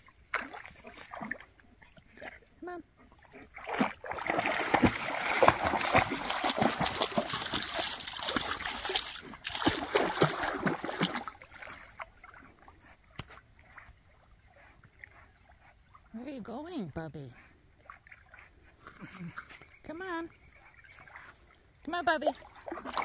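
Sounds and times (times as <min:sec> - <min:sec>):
water lapping: 0:00.0 - 0:23.0
dog splashing in water: 0:00.2 - 0:01.6, 0:03.2 - 0:12.7, 0:22.3 - 0:23.0.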